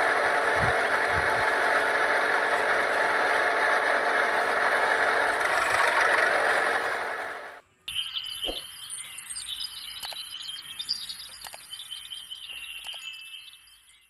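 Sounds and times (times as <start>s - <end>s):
birds chirping: 7.7s - 14.0s.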